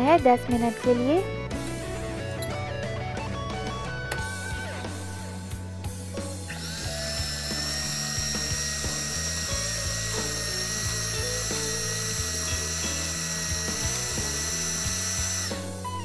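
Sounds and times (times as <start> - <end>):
background music: 0.0 - 16.0
electric hand mixer whine: 3.4 - 16.0.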